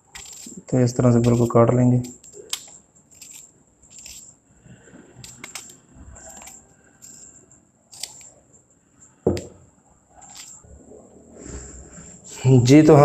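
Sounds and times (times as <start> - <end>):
knife knocking on cutting board: 9.3 - 9.6.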